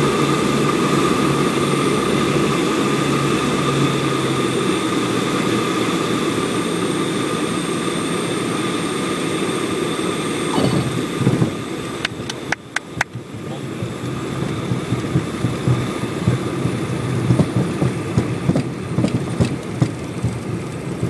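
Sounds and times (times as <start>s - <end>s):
aircraft engine and cabin noise: 0.0s - 21.0s
wheels rumbling on runway: 0.0s - 21.0s
sharp clicks: 12.0s - 13.2s.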